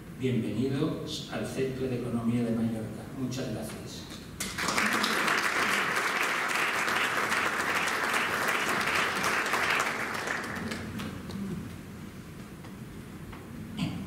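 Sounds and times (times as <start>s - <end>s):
audience applauding: 4.4s - 11.4s.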